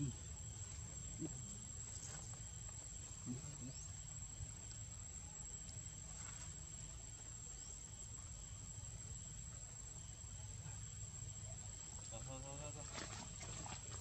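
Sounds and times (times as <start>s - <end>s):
high-pitched insect drone: 0.0s - 13.8s.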